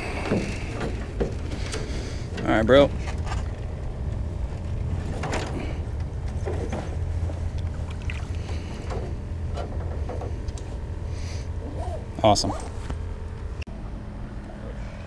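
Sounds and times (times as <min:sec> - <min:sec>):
low rumble: 0:00.0 - 0:15.0
fish splashing in water: 0:07.8 - 0:08.7.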